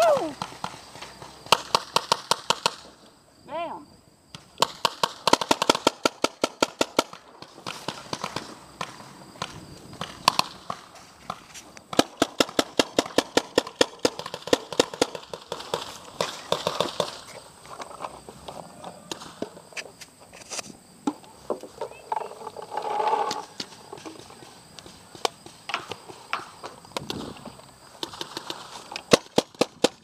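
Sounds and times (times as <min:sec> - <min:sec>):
paintball markers firing: 0:04.4 - 0:17.4, 0:28.0 - 0:30.0.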